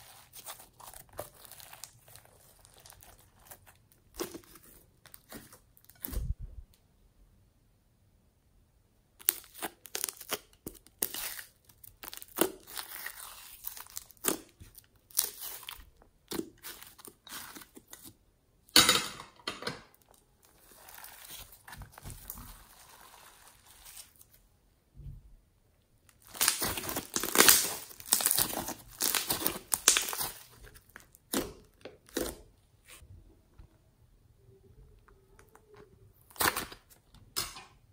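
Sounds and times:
hands squishing slime: 0.0 - 6.3, 9.2 - 18.2, 20.5 - 24.3, 26.1 - 33.0.

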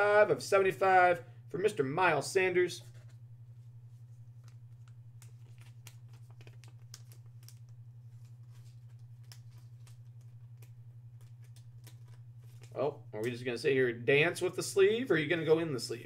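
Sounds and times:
steady low hum: 0.0 - 16.0
plastic card sleeve crinkling: 2.8 - 12.8.

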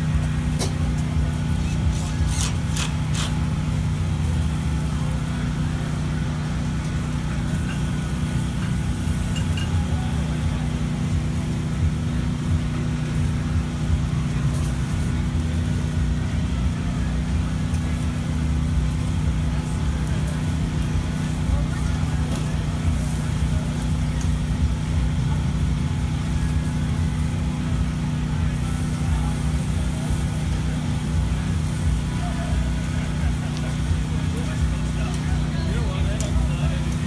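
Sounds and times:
background chatter: 0.0 - 37.0
low mechanical hum: 0.0 - 37.0.

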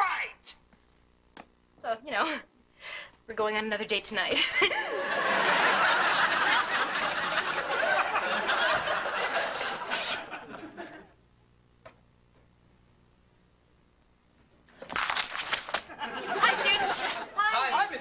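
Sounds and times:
audience laughing: 4.4 - 11.1, 15.9 - 18.0.

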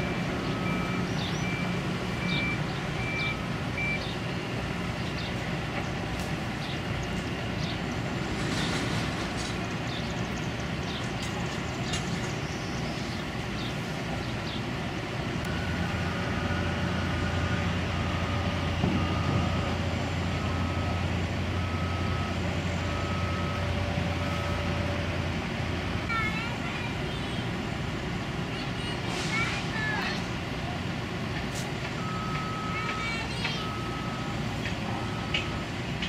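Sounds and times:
reversing alarm beeping: 0.0 - 5.3, 15.4 - 25.0, 32.0 - 35.7
birds chirping: 0.3 - 8.2, 9.5 - 15.4.

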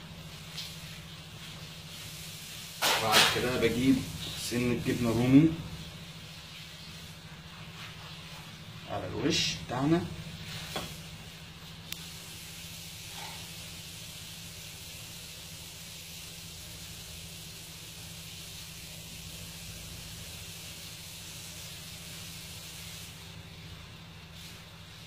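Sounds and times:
even hiss: 0.0 - 25.0
low steady hum: 0.0 - 25.0.

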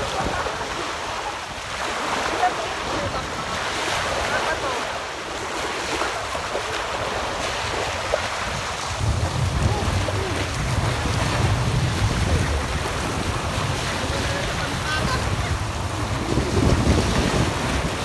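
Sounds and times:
small waves washing ashore: 0.0 - 18.0
low wind rumble on microphone: 5.4 - 18.0.

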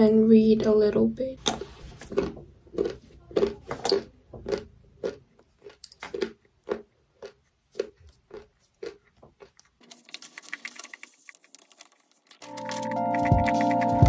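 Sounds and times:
person chewing: 1.4 - 14.0.

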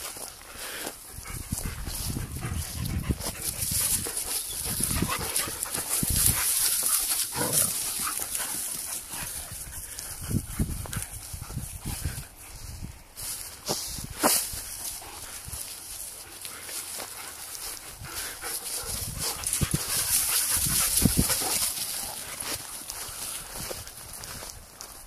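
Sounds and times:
dogs growling and grunting: 7.2 - 8.3.

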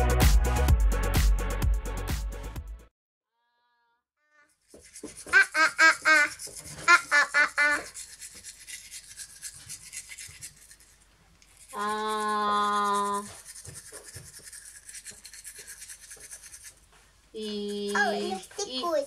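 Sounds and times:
toothbrush scrubbing teeth: 4.5 - 19.0
child making ah sounds: 17.4 - 19.0.

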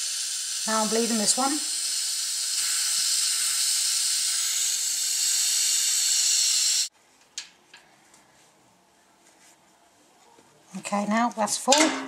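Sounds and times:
air hissing from radiator valve: 0.0 - 6.9.

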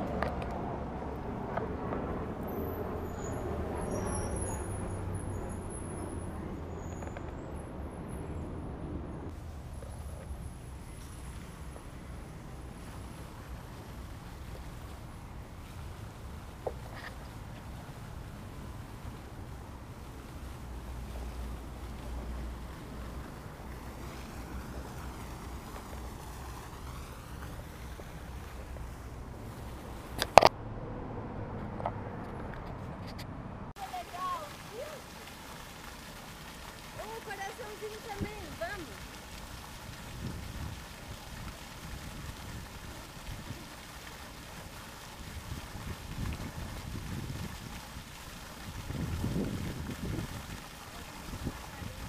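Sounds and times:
vehicle rumble: 0.0 - 40.7
wind rumbling on microphone: 37.0 - 52.0.

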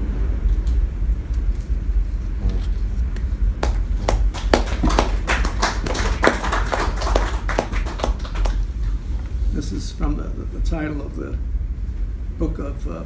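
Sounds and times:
steady low hum: 0.0 - 13.0
small audience applause: 3.6 - 8.9.

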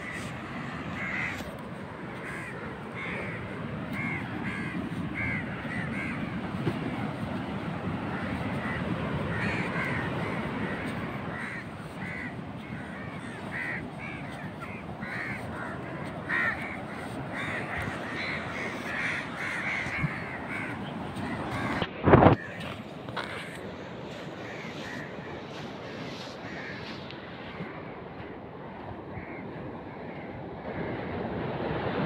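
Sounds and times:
surf rushing: 0.0 - 32.0.

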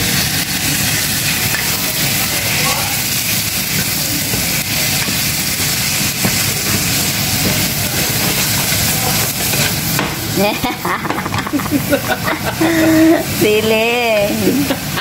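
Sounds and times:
meat and onions sizzling in oil: 0.0 - 15.0
wooden spatula stirring: 3.0 - 10.0.

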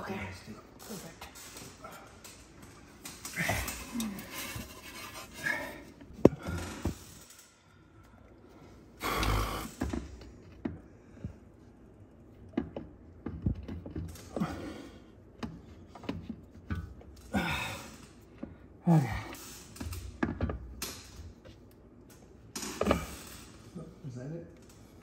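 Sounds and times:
heavy breathing: 3.2 - 9.9
low grunt: 3.3 - 4.4, 18.8 - 19.4.

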